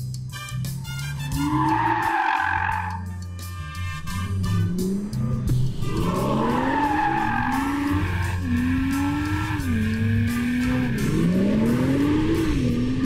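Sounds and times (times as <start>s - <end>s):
music with steady bass: 0.0s - 13.0s
car engine revving hard: 4.2s - 13.0s
tyres squealing: 6.0s - 10.0s.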